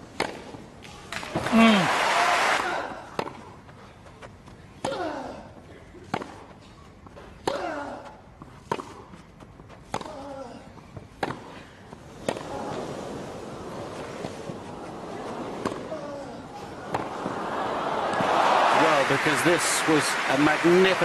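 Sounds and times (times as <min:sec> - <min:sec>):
tennis ball hit by racquet: 0:16.8 - 0:17.3.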